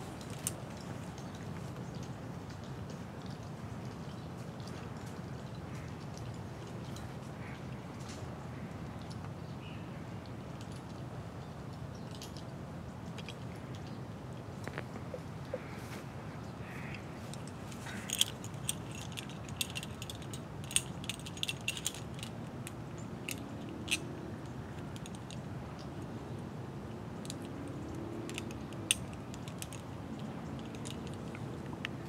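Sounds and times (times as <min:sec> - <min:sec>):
carabiners clicking and clinking: 0:17.3 - 0:24.1, 0:24.7 - 0:25.5, 0:27.2 - 0:31.9.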